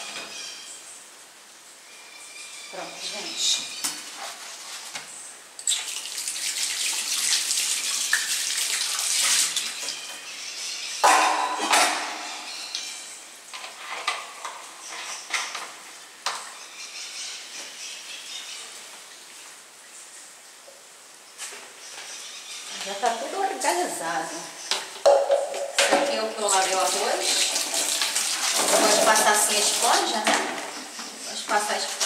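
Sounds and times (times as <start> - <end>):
dish clattering down: 11.0 - 12.5, 25.1 - 26.2.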